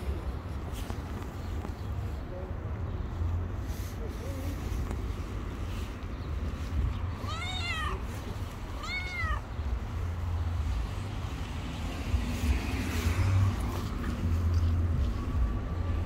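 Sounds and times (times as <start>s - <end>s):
cat meowing: 7.1s - 9.6s.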